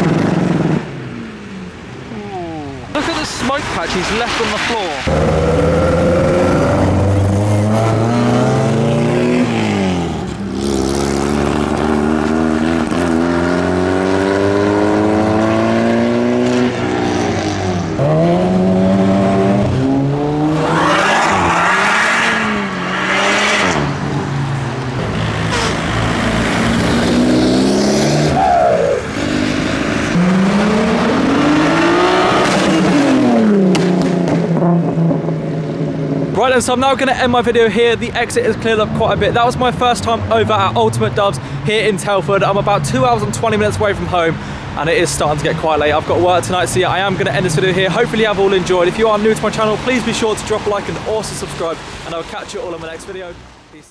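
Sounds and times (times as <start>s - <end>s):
cars accelerating past: 2.6s - 36.4s.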